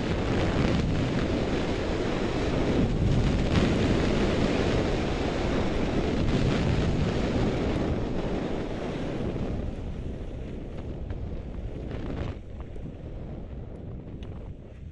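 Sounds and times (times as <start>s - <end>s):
skis sliding on packed snow: 0.0s - 13.7s
wind rushing over microphone: 0.0s - 14.9s.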